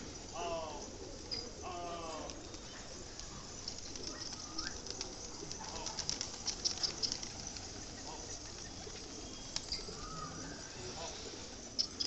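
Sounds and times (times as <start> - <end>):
pigeons cooing: 0.0 - 12.0
wing flutters and clicks: 2.2 - 10.4.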